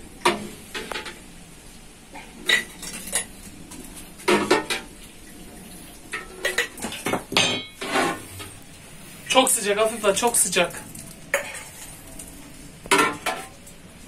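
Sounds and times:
metal ladle scraping pot: 7.4 - 8.6.

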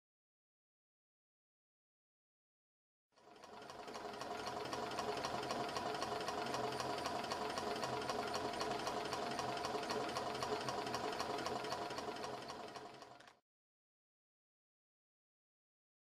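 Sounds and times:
stirling engine rapid ticking: 3.2 - 13.4.

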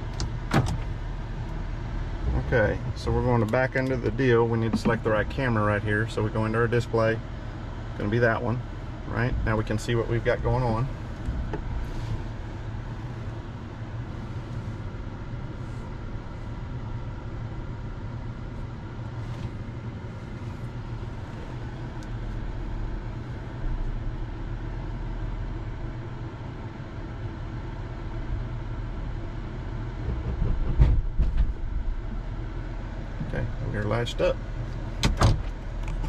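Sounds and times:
diesel engine idling: 0.0 - 30.3, 31.0 - 36.0
trailer hitch clunks: 34.8 - 36.0.

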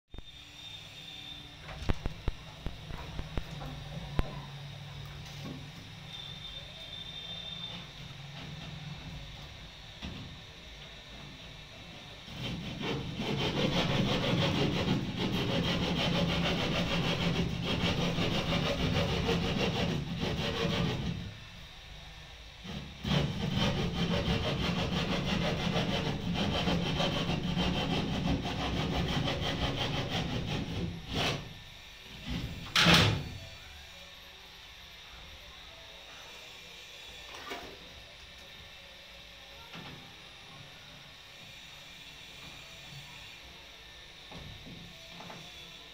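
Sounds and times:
hand saw cutting board: 12.2 - 21.4, 22.6 - 33.3.

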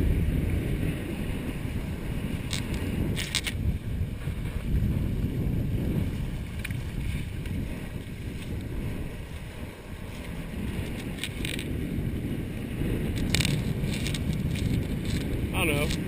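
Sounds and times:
water rushing along hulls: 0.0 - 16.0
wind buffeting microphone: 0.0 - 16.0
faint ticks: 2.5 - 3.6.

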